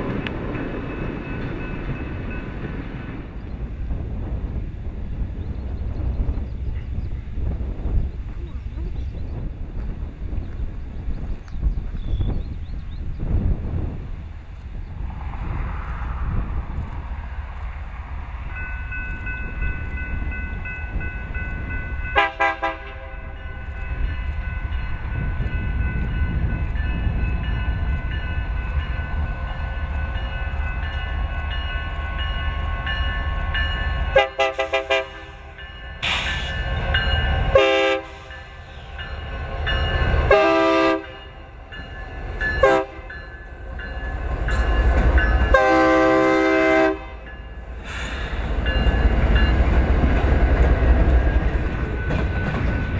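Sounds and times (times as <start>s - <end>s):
diesel freight train rumbling: 0.0s - 52.9s
locomotive air horn blasts: 22.2s - 23.4s, 34.1s - 36.6s, 37.5s - 38.9s, 40.3s - 41.4s, 42.6s - 43.2s, 45.5s - 47.3s.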